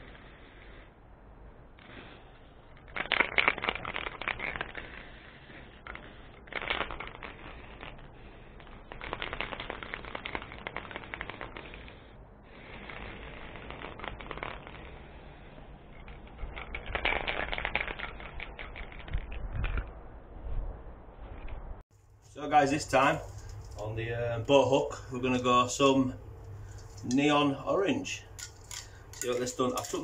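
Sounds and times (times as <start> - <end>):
spray paint can hissing: 1.8 - 19.4.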